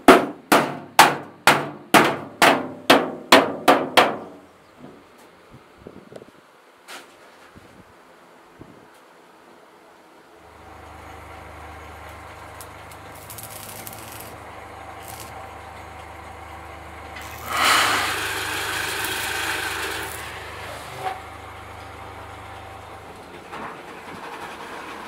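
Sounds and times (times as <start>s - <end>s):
low hum: 10.4s - 23.6s
welding arc crackling: 10.5s - 23.1s.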